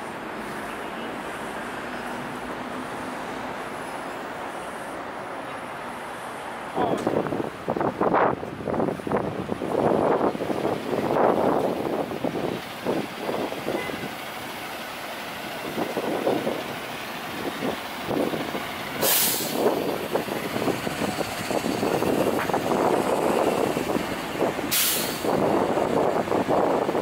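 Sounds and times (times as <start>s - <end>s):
city street traffic: 0.0s - 27.0s
air brakes hissing: 18.8s - 24.0s, 24.6s - 25.8s.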